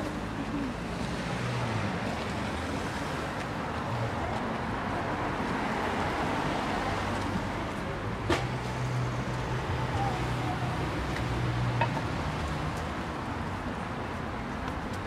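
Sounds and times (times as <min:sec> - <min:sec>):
passing cars traffic noise: 0:00.0 - 0:15.0.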